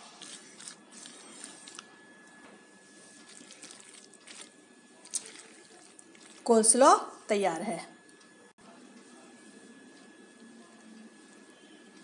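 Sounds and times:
wet squelching of stirred salad: 3.0 - 6.8.

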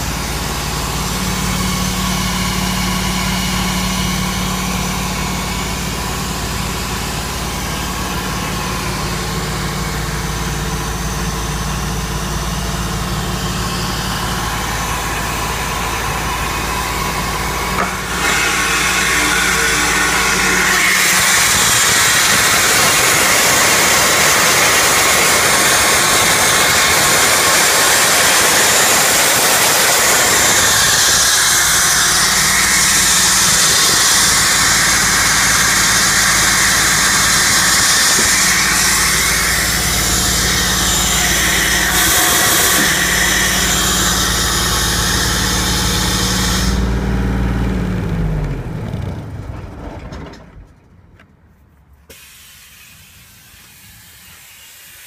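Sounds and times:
pump engine drone: 0.0 - 50.4, 52.1 - 55.0
strong hiss: 52.1 - 55.0.

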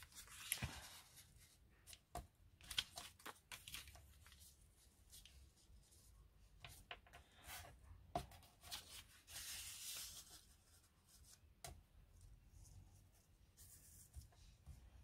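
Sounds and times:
paper rustling: 0.0 - 2.0, 2.6 - 5.6, 8.4 - 11.4.

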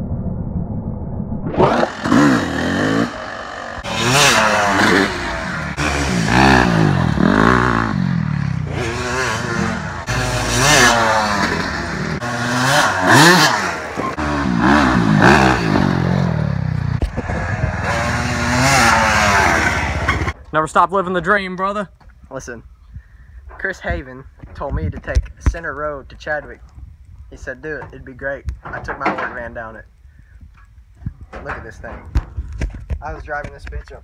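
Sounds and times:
dirt bike engine revving: 1.6 - 20.4.

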